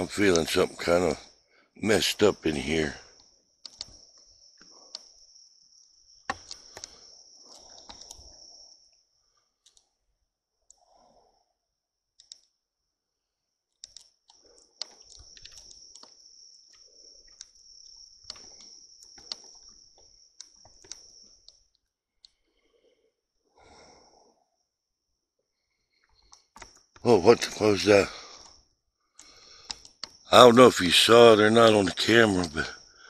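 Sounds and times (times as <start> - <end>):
night insects chirring: 0.0 - 33.0
sharp clicks: 3.2 - 4.3, 6.3 - 8.3, 12.2 - 12.5, 13.8 - 17.6, 18.2 - 21.6, 26.0 - 28.6, 29.2 - 31.3.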